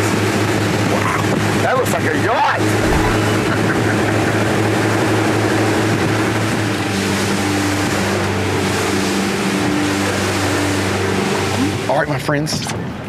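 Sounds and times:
motorboat engine hum: 0:00.0 - 0:12.1
water rushing: 0:02.6 - 0:04.6.

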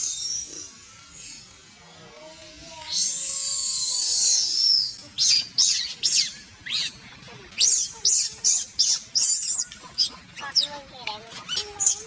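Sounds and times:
baby monkey screaming: 0:02.7 - 0:10.8, 0:11.5 - 0:12.0.

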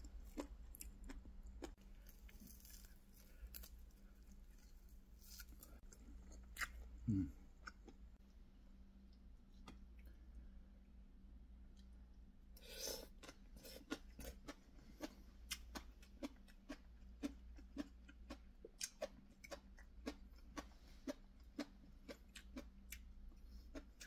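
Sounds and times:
crunchy chewing: 0:00.0 - 0:08.0.

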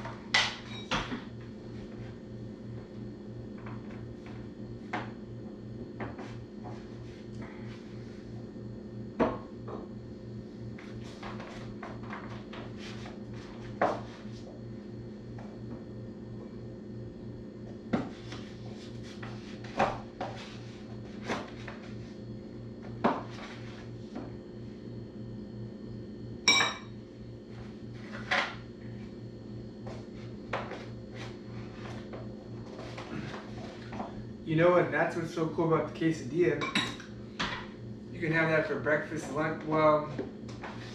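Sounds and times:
steady low hum: 0:00.0 - 0:40.9
dishes and utensils clinking: 0:36.6 - 0:37.0.

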